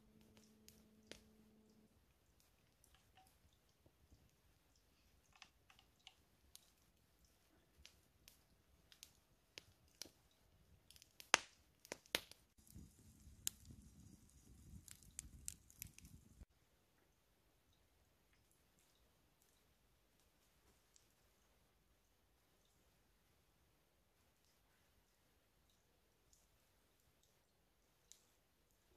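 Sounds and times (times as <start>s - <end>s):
campfire crackling and popping: 0.1s - 16.5s.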